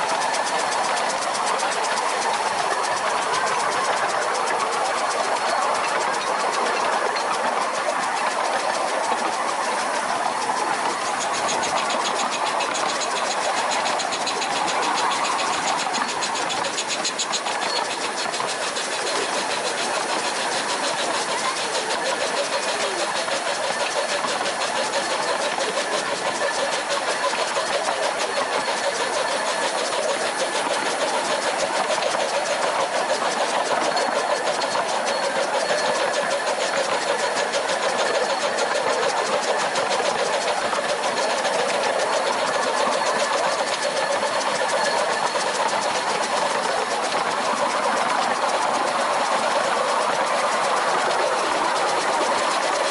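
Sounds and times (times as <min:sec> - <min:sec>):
steam locomotive running: 0:00.0 - 0:52.9.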